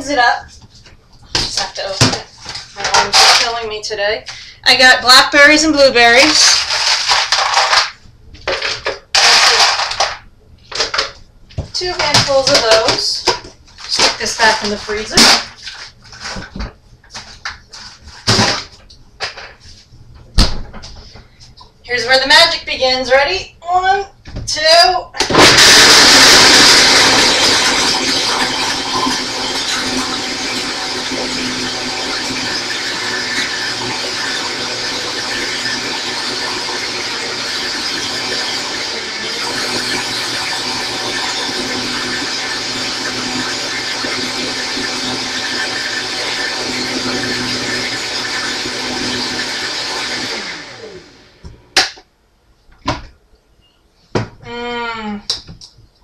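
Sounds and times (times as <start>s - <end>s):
blender blending frozen fruit: 6.3s - 7.8s, 9.2s - 10.1s, 25.2s - 51.4s.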